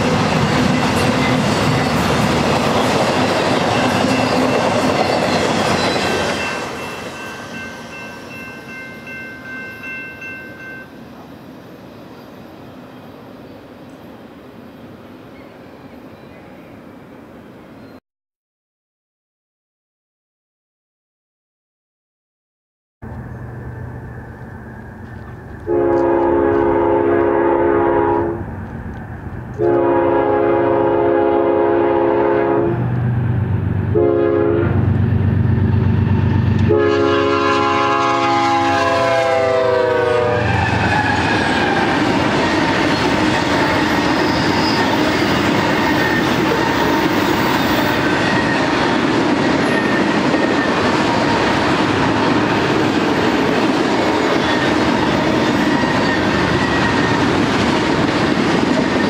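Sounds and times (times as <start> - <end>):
rail cars rolling on rails: 0.0 - 17.9, 23.0 - 59.0
locomotive engine rumble: 23.0 - 30.4
locomotive air horn blasts: 25.6 - 28.4, 29.6 - 32.8, 33.9 - 34.8, 36.6 - 40.8.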